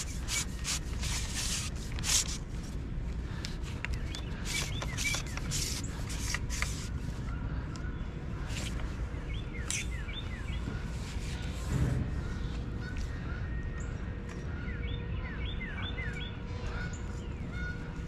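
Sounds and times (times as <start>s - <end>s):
handling clicks and rustles: 0.0s - 7.2s
steady low rumble: 0.0s - 18.0s.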